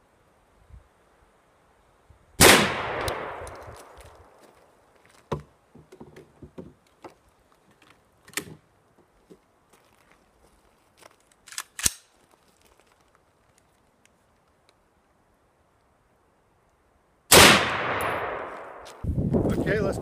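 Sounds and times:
shotgun shot with echo: 0:02.4 - 0:03.5, 0:17.3 - 0:18.8.

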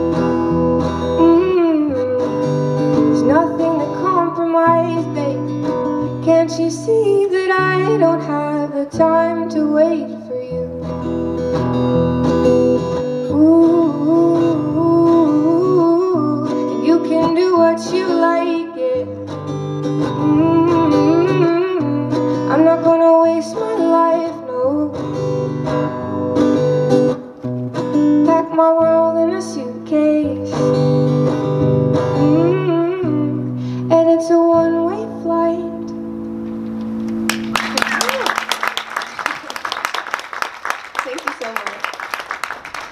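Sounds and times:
acoustic guitar strumming: 0:00.0 - 0:37.9
woman singing: 0:01.0 - 0:11.0, 0:13.2 - 0:19.4, 0:20.0 - 0:25.6, 0:28.2 - 0:30.8, 0:32.0 - 0:36.0.

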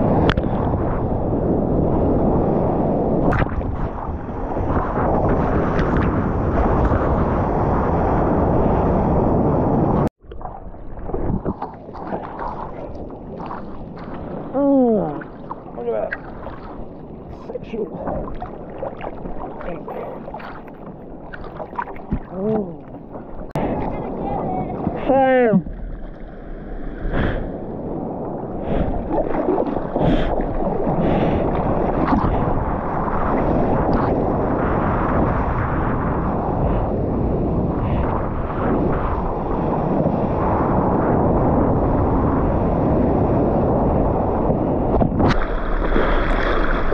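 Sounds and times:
wind on microphone: 0:00.0 - 0:46.9
seawater splashing and lapping: 0:10.2 - 0:35.2, 0:45.1 - 0:46.9
breaking wave: 0:10.4 - 0:34.2.

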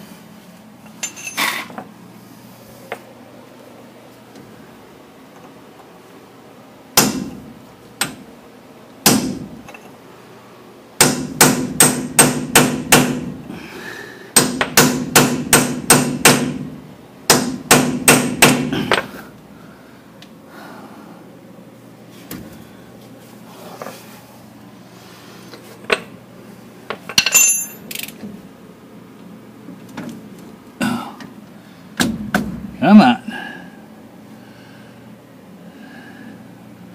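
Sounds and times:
hammer striking metal: 0:11.0 - 0:13.3, 0:14.4 - 0:16.6, 0:17.3 - 0:18.7
light metallic clinks: 0:27.2 - 0:28.0.

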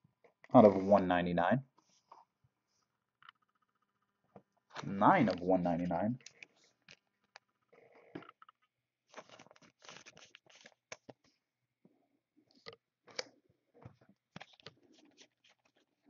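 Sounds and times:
plastic sleeve rustling: 0:09.1 - 0:11.2.

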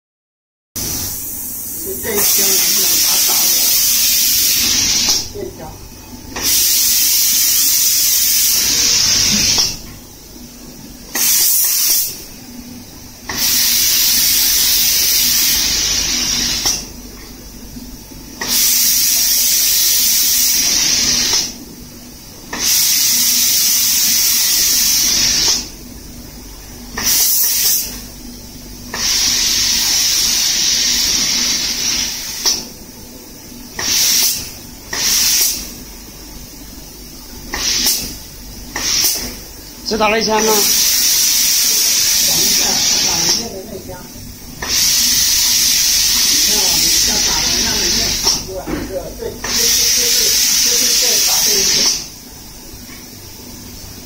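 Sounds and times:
spray guns hissing: 0:00.8 - 0:05.4, 0:06.4 - 0:09.8, 0:11.1 - 0:12.3, 0:13.3 - 0:16.9, 0:18.4 - 0:21.6, 0:22.5 - 0:25.7, 0:27.0 - 0:28.0, 0:28.9 - 0:32.7, 0:33.8 - 0:35.7, 0:37.5 - 0:39.4, 0:40.0 - 0:43.7, 0:44.6 - 0:48.6, 0:49.3 - 0:52.2.

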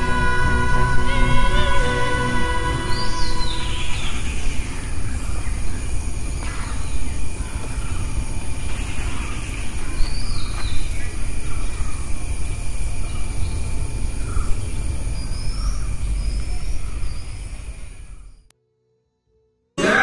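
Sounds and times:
low outdoor rumble: 0:00.0 - 0:10.1
murmuring voices: 0:19.8 - 0:20.0.

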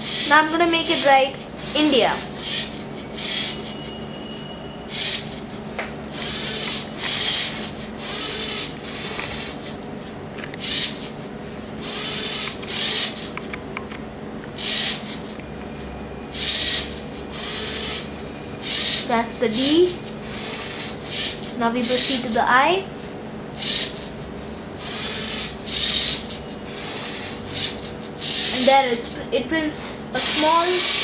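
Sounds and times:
pen plotter scratching on paper: 0:00.0 - 0:03.8, 0:04.9 - 0:09.8, 0:11.8 - 0:13.4, 0:16.4 - 0:22.4, 0:23.6 - 0:24.2, 0:24.8 - 0:28.8, 0:30.2 - 0:31.0
steady low hum: 0:00.0 - 0:31.0.

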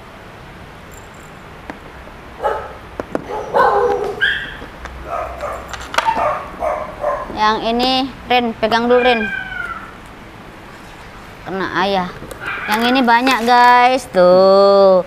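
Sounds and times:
dog barking and yipping: 0:02.4 - 0:07.4, 0:12.4 - 0:13.1.

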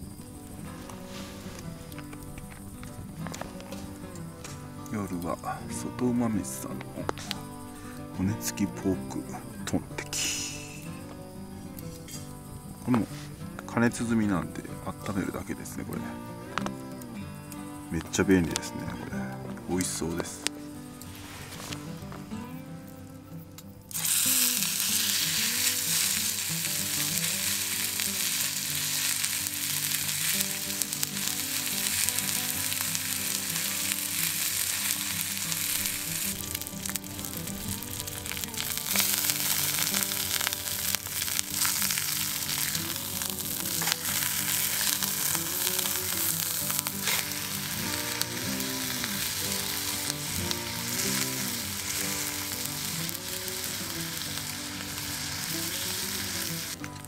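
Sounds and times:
small pops: 0:00.6 - 0:05.0, 0:16.4 - 0:57.0
meat sizzling in a pan: 0:23.9 - 0:56.8.

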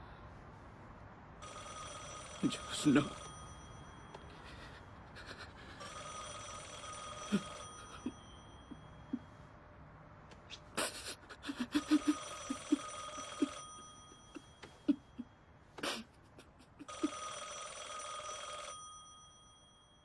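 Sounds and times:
telephone ringing: 0:01.4 - 0:09.5, 0:11.4 - 0:15.5, 0:16.8 - 0:20.0.

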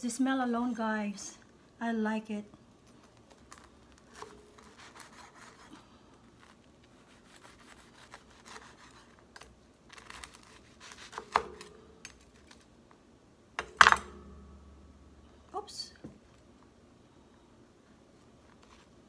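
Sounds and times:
knife sawing through crusty bread: 0:04.6 - 0:05.8, 0:06.9 - 0:09.2.

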